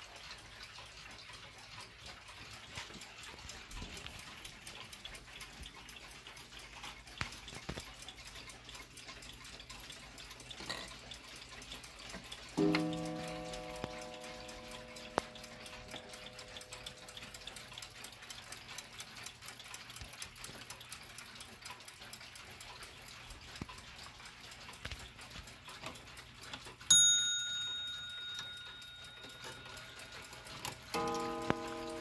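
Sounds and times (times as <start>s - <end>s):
mechanical clocks ticking: 0.0s - 32.0s
clock strike ringing: 12.5s - 18.4s, 26.9s - 32.0s
high metallic ding: 26.9s - 30.2s.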